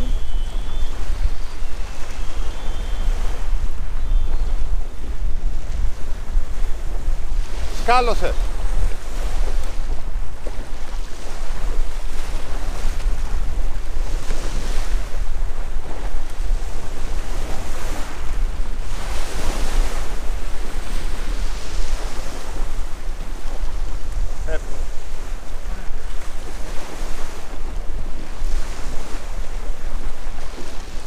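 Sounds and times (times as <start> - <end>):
sea waves on shore: 0.0 - 31.0
wind buffeting microphone: 0.0 - 31.0.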